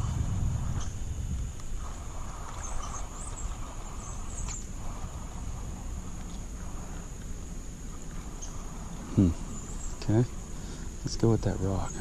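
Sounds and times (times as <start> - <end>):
low rumble: 0.0 - 10.6
insects droning: 0.0 - 12.0.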